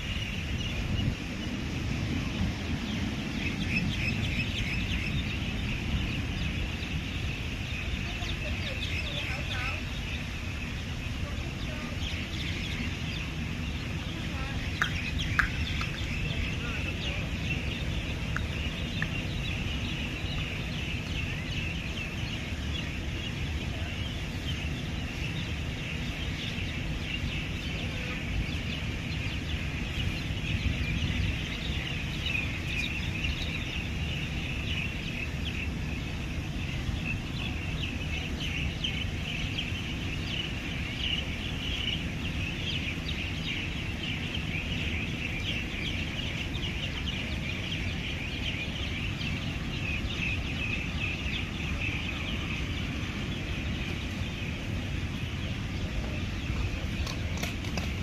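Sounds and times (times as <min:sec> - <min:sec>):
birds chattering and chirping: 0:00.0 - 0:58.0
steady low rumble: 0:00.0 - 0:58.0.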